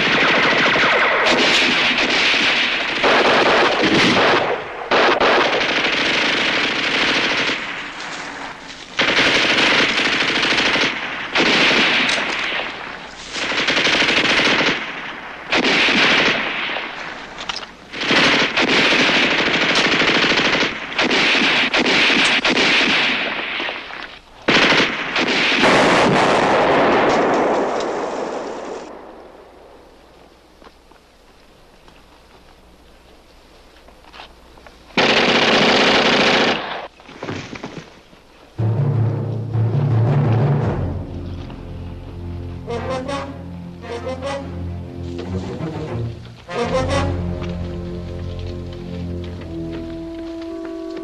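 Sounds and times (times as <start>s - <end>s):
rifle gunfire volleys: 0.0s - 29.8s, 35.0s - 36.9s.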